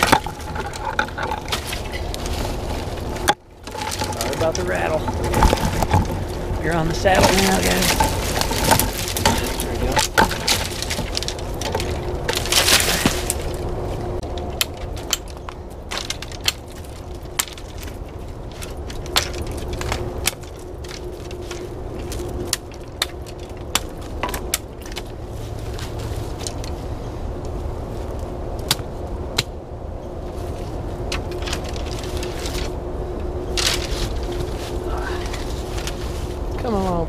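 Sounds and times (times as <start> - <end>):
hatchet knocking twigs: 0.0 - 26.8, 28.5 - 29.6
branches crackling and snapping: 0.0 - 37.0.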